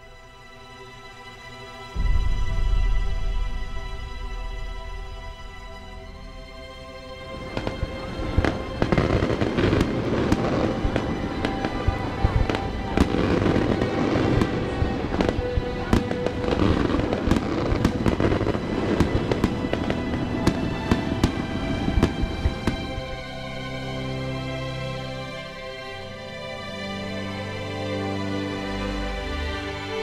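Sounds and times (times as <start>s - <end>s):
fireworks crackling: 7.3s - 23.2s.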